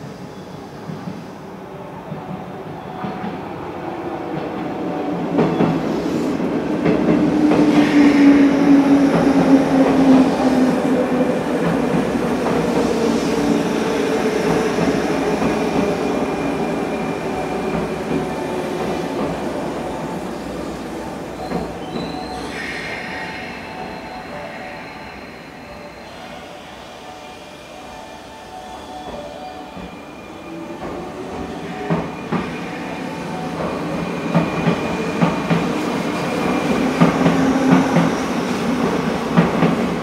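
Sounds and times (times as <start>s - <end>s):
train wheels rumbling and clicking: 4.4s - 20.8s, 30.8s - 32.7s, 33.4s - 40.0s.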